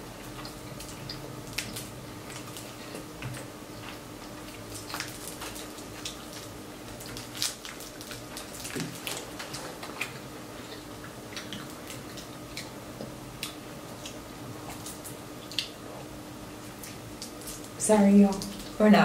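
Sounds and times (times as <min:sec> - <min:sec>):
faint steady hum: 0:00.0 - 0:19.0
wet chewing smacks and clicks: 0:03.3 - 0:15.8.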